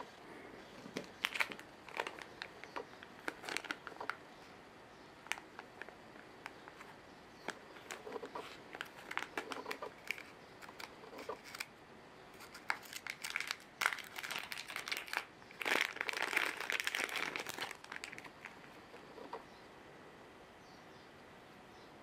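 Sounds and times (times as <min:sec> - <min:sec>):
plastic bag crinkling: 0:00.0 - 0:04.2, 0:05.3 - 0:11.7, 0:12.4 - 0:19.4.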